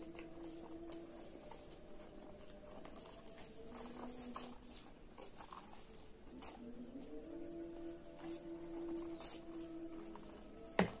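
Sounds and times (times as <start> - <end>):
noodle slurping: 2.3 - 6.8.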